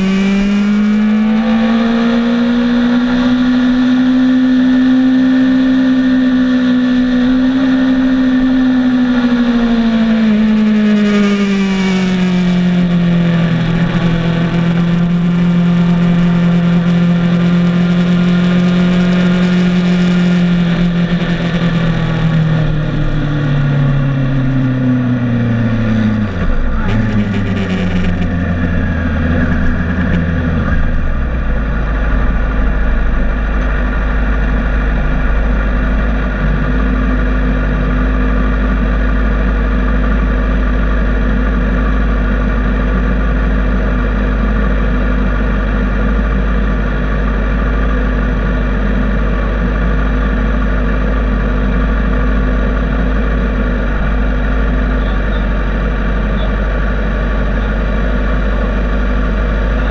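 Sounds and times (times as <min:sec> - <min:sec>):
motorcycle engine idling: 0:18.8 - 0:59.9.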